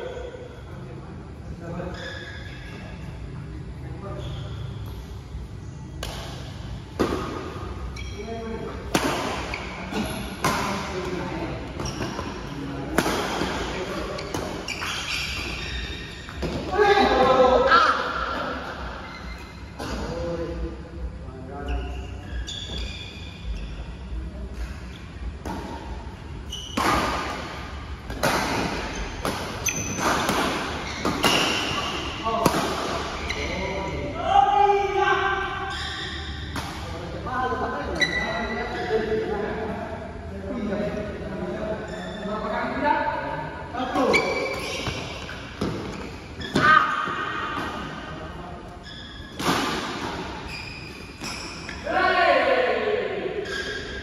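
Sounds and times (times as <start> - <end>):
court shoes squeaking: 1.6 - 20.4, 21.5 - 34.2, 35.2 - 39.3, 41.8 - 42.8, 43.5 - 52.0, 53.4 - 54.0
rackets hitting shuttlecock: 26.7 - 33.3.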